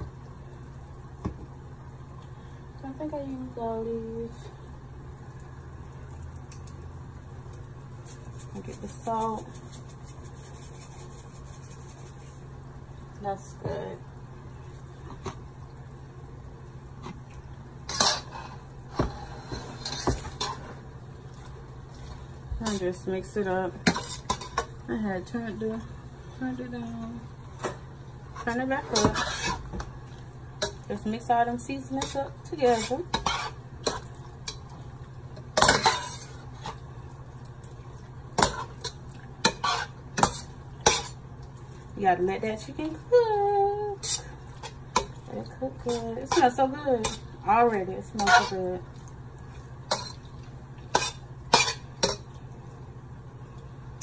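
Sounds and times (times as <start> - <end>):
metal spatula scraping frying pan: 17.9 - 20.8, 23.8 - 24.7, 28.5 - 29.7, 31.9 - 34.0, 35.6 - 36.8, 38.4 - 41.2, 48.1 - 48.7, 50.9 - 52.2.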